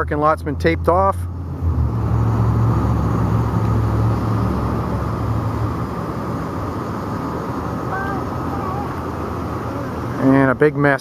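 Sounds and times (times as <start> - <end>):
car engine hum: 0.0 - 11.0
road noise: 0.0 - 11.0.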